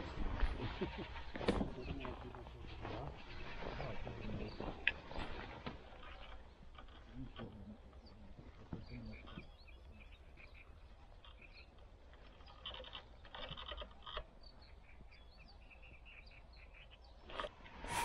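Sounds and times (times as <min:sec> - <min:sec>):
low wind rumble: 0:00.0 - 0:12.4
small birds chirping: 0:00.1 - 0:17.6.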